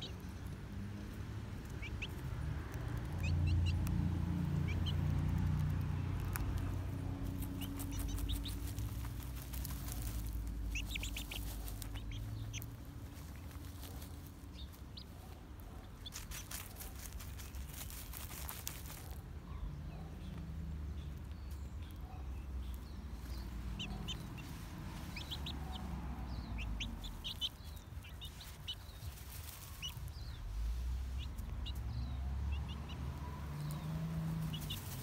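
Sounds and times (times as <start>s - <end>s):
chick peeps: 0.0s - 20.4s, 21.0s - 35.0s
rustling and scratching of litter: 5.3s - 19.3s, 26.7s - 31.6s, 33.6s - 35.0s.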